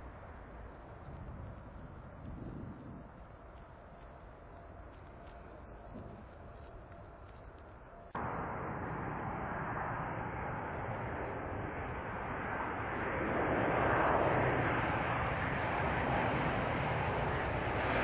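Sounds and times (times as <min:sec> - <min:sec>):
jet engines rushing: 0:08.2 - 0:18.0.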